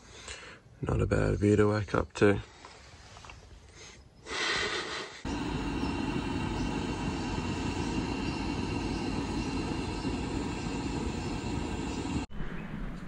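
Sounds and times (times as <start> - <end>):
gas stove burner rushing: 5.3 - 12.3.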